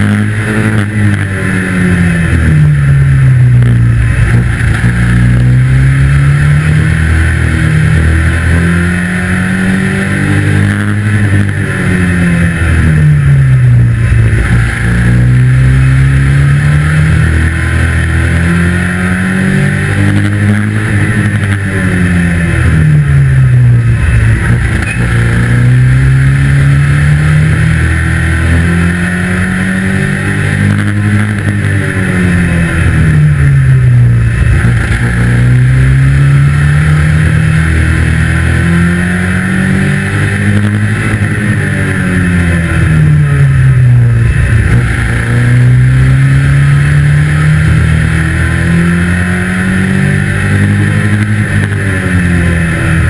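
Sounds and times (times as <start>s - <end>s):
racing car engine revving: 0.0s - 53.0s.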